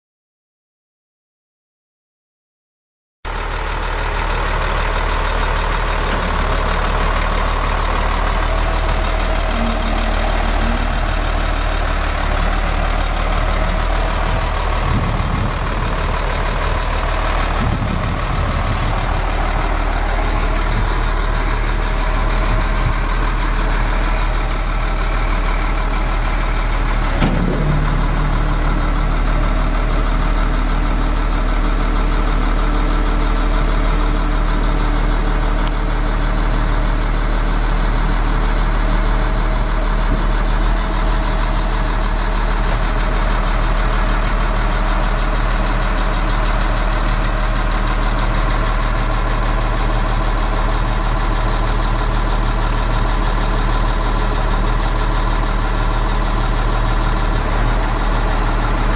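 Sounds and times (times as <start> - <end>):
truck engine running: 3.3 - 58.9
hydraulic hoist whine: 6.0 - 12.7.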